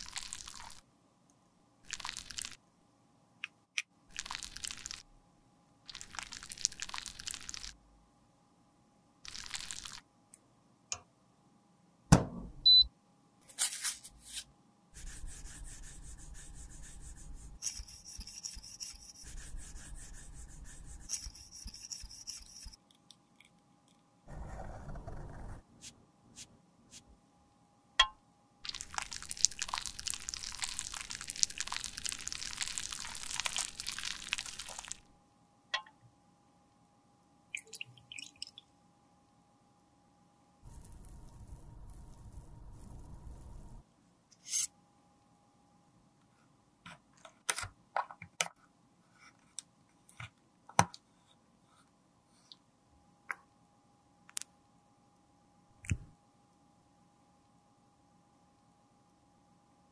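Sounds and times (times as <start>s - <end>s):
metal spatula scraping glass: 17.6s - 19.3s, 21.1s - 22.8s.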